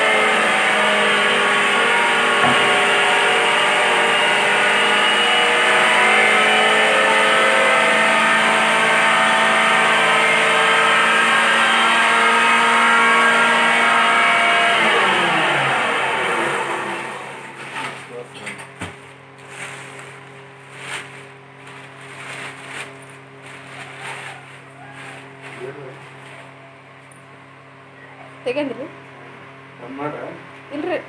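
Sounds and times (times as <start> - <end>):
grinder whining: 0.0 - 31.0
knock: 2.4 - 2.8.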